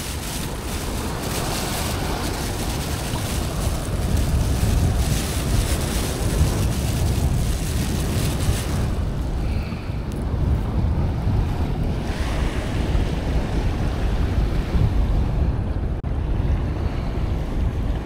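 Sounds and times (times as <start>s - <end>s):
plastic bag rustling: 0.0s - 9.3s
small waves washing on shore: 0.0s - 14.9s
wind buffeting microphone: 0.0s - 18.0s.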